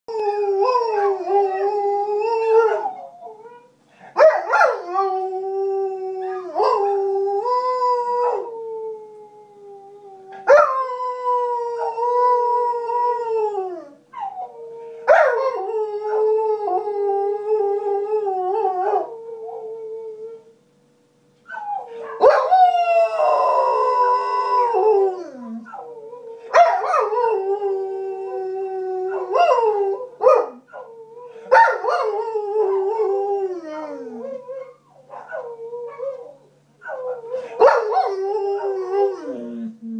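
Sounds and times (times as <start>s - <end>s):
puppy howling: 21.5s - 39.8s.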